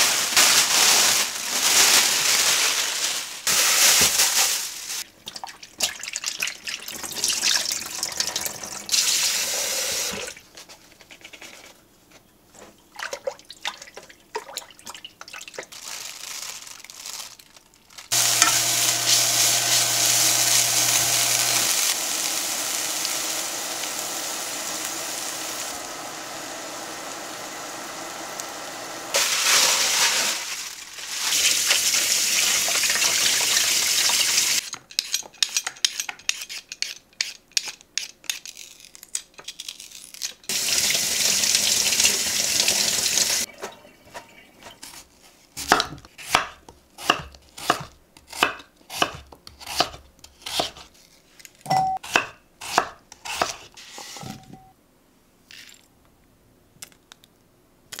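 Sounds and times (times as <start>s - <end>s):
meat sizzling in a frying pan: 18.1s - 34.6s
peeler scraping a potato: 34.9s - 39.0s
knife chopping on wooden board: 45.6s - 50.8s, 52.0s - 53.7s.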